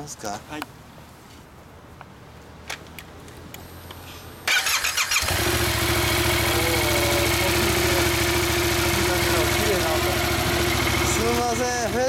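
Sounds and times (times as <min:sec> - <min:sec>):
motorcycle engine starting and idling: 0:04.4 - 0:12.0.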